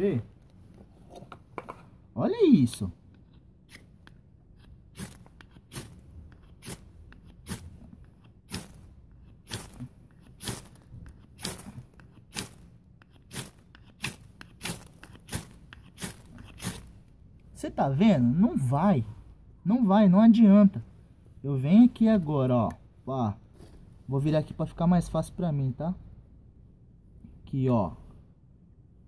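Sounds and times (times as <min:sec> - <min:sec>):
knife scraping ferrocerium rod: 0:03.3 - 0:16.9.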